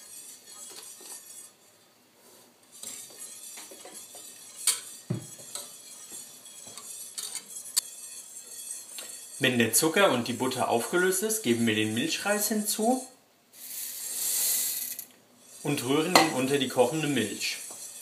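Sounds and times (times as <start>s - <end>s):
metal whisk clinking against pot: 0.0s - 1.6s, 2.7s - 12.5s, 15.4s - 18.0s.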